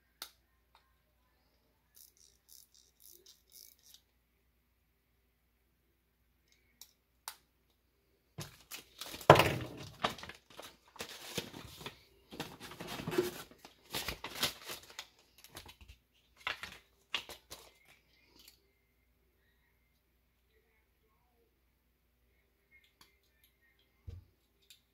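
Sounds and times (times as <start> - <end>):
plastic bag crinkling: 8.4 - 15.7.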